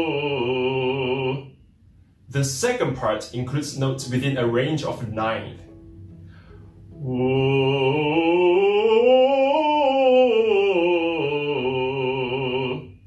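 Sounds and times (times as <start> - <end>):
man singing operatic run: 0.0 - 1.5, 7.0 - 13.0.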